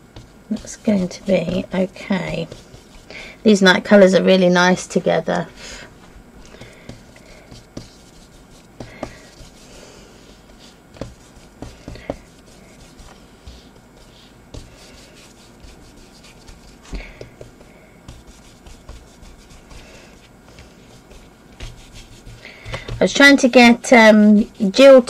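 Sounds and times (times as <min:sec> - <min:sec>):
paintbrush scrubbing on paper: 0:00.2 - 0:03.1, 0:06.6 - 0:23.2.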